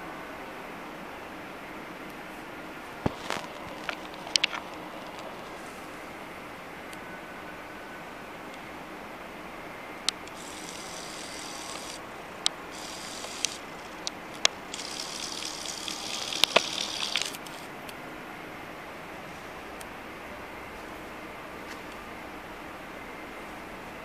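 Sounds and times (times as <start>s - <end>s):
steady room hiss: 0.0s - 24.0s
camera handling rustle: 3.1s - 5.6s, 12.7s - 17.7s
sharp clicks: 3.1s - 5.6s, 10.0s - 17.7s.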